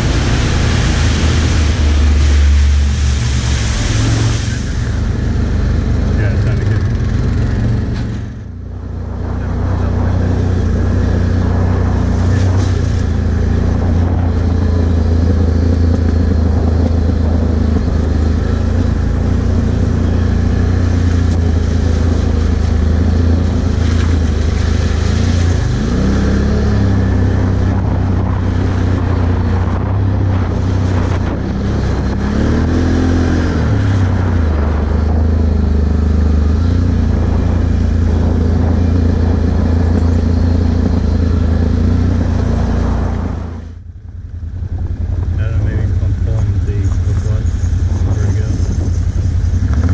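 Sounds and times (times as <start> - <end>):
rushing noise: 0.0 - 43.9
atv engine running: 0.0 - 49.9.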